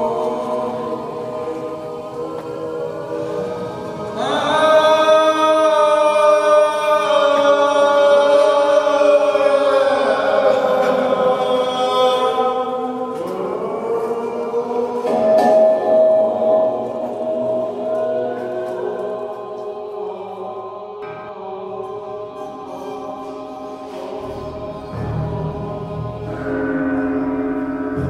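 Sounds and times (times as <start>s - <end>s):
voices chanting long held notes: 0.0s - 28.0s.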